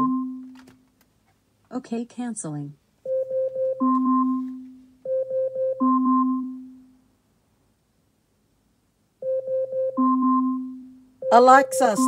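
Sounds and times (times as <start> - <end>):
smart speaker electronic chime: 0.0 - 0.5, 3.1 - 7.0, 9.2 - 12.0.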